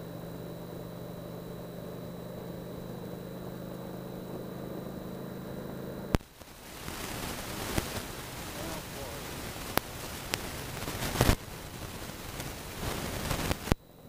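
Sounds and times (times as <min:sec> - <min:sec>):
motorcycle engine cruising: 0:00.0 - 0:13.7
thin high whine: 0:00.0 - 0:14.0
rushing hiss: 0:06.2 - 0:13.8.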